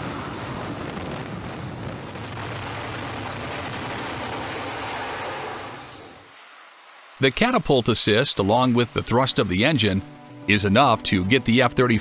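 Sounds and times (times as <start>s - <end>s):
jet engine at full thrust: 0.0s - 9.6s.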